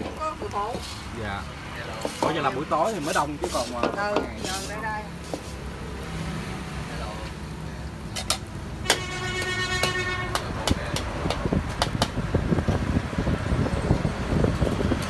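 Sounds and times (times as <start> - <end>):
batter frying in pans: 0.0 - 5.8
vehicle horn: 8.8 - 10.8.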